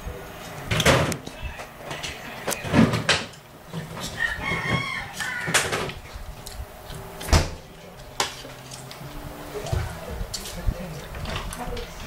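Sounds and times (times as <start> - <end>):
rooster crowing: 4.0 - 6.0.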